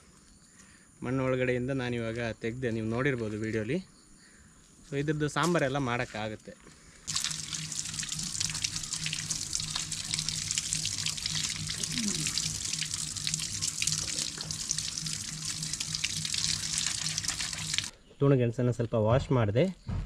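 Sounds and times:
hands rubbing tuber under water: 0:07.1 - 0:17.9
water splashing on concrete: 0:07.1 - 0:17.9
low steady hum: 0:07.1 - 0:18.0.

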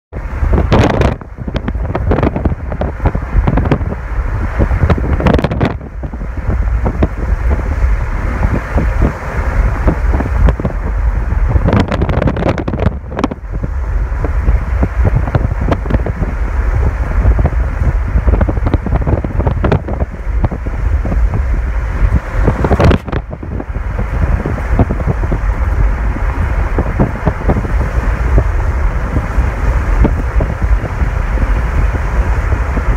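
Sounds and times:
low rumble of car on road: 0:00.1 - 0:32.9
wind buffeting microphone: 0:00.1 - 0:32.9.

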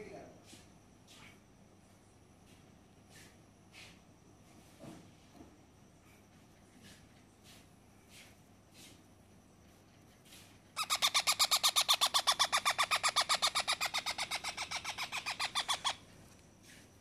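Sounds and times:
parrot chick calling: 0:10.8 - 0:16.1.

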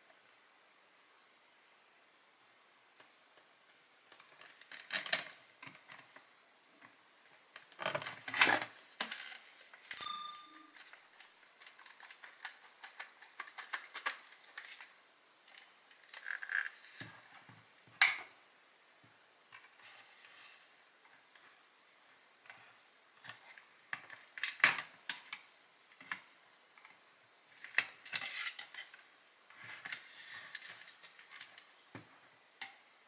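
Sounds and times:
small parts clicking and rustling: 0:03.6 - 0:06.2, 0:07.5 - 0:18.2, 0:26.8 - 0:31.8
brief ringing tone: 0:10.0 - 0:11.2.

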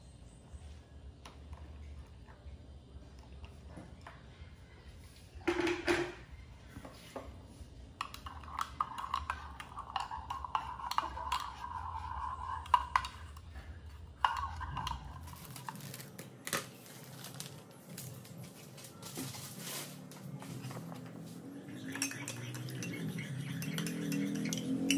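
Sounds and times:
metal spoon stirring in ceramic cup: 0:08.0 - 0:15.9, 0:21.6 - 0:24.9
plastic bag rustling: 0:15.4 - 0:20.6.

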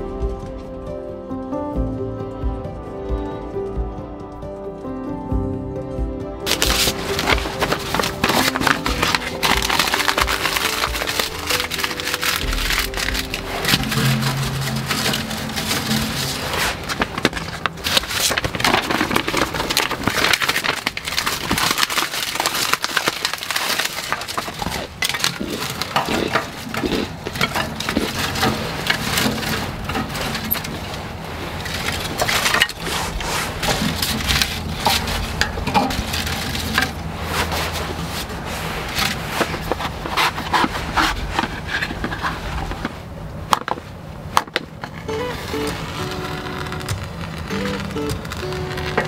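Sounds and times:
wood veneer snapping and splintering: 0:06.5 - 0:31.0.

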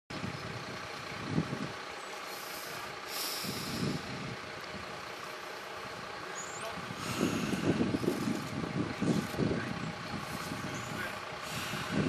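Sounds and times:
heavy vehicle engine idling: 0:00.1 - 0:12.0
short hiss: 0:02.3 - 0:04.0.

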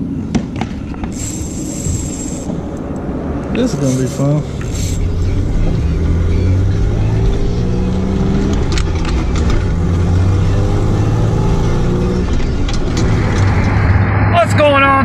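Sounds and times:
pickup engine revving: 0:01.2 - 0:14.4
gear shift clicks: 0:08.4 - 0:09.8.

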